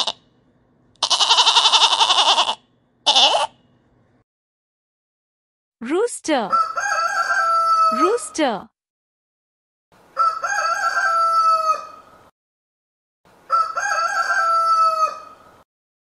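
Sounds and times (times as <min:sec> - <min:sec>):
rooster crowing: 0:06.5 - 0:08.1, 0:10.1 - 0:12.1, 0:13.5 - 0:15.5.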